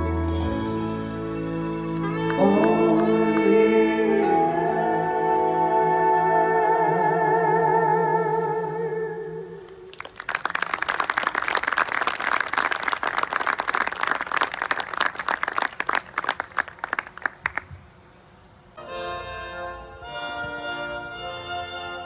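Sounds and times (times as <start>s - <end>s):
person singing with vibrato: 0.0s - 10.0s
crowd applauding: 9.9s - 17.8s.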